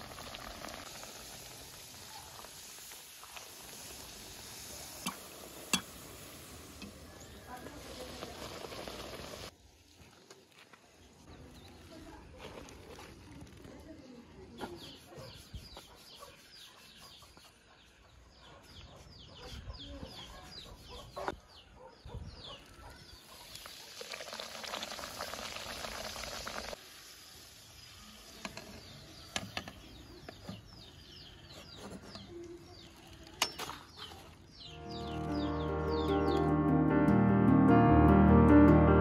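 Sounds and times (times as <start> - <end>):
hiss: 0.0 - 9.5, 23.3 - 28.5
small birds chirping: 10.2 - 23.8, 25.6 - 36.6.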